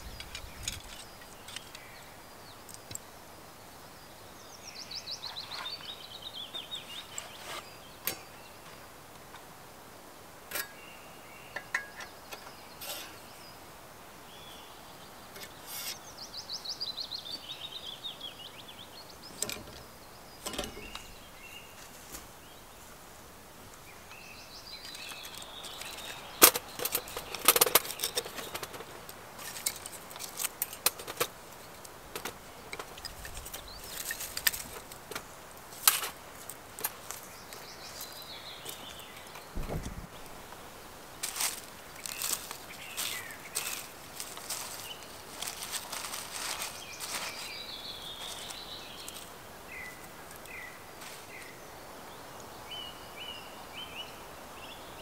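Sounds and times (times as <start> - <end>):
songbird trilling: 14.3 - 21.8.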